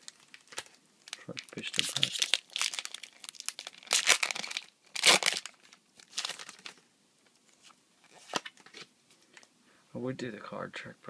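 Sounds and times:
foil wrapper tearing and crinkling: 0.0 - 6.8.

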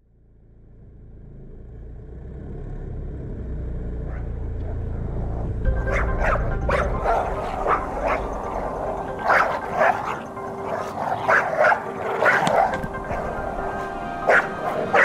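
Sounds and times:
dog barking: 4.0 - 5.0, 5.8 - 15.0.

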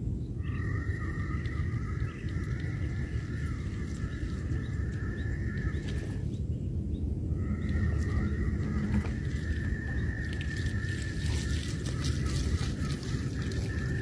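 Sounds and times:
high-pitched whine: 0.0 - 14.0
wind rumbling on microphone: 0.0 - 14.0.

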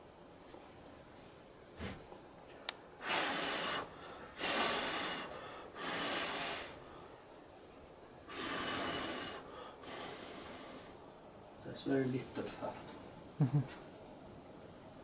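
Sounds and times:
person blowing puffs of breath: 3.0 - 6.9, 8.3 - 11.0.

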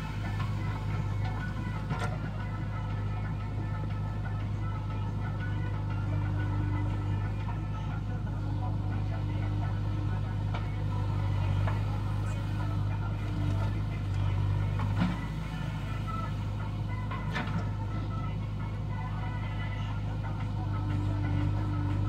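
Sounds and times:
diesel engine under load: 0.0 - 22.0.

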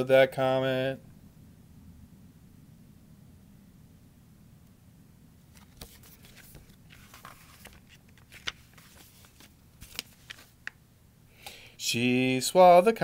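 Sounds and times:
paper pages rustling and turning: 5.5 - 10.8.

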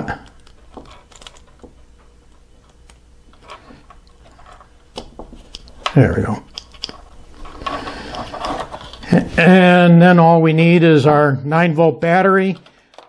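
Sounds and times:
plastic parts clicking: 12.6 - 13.0.

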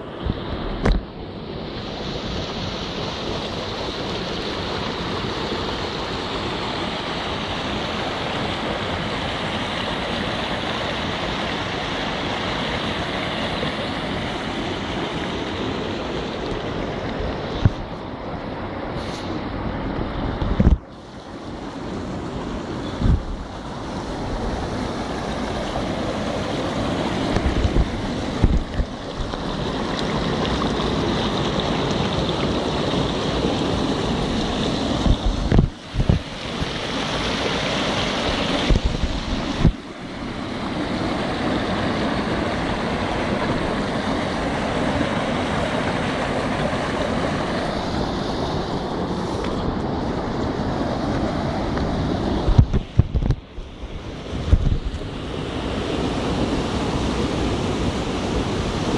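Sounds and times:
river rushing over rocks: 0.0 - 58.9
thumps on microphone: 20.4 - 20.8, 52.4 - 53.4.

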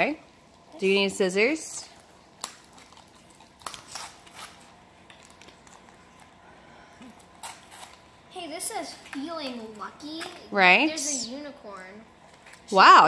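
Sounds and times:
plastic packaging crinkling: 2.2 - 6.4.

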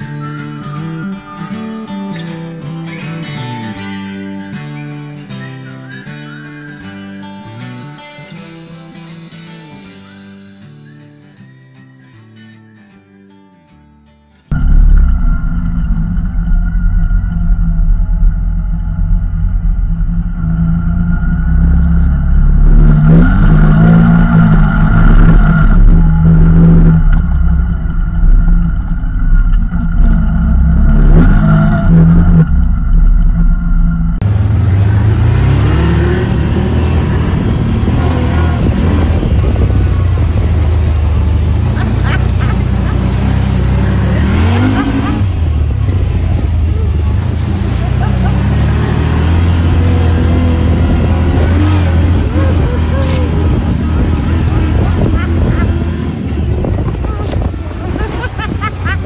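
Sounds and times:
buggy engine revving: 14.5 - 59.0.

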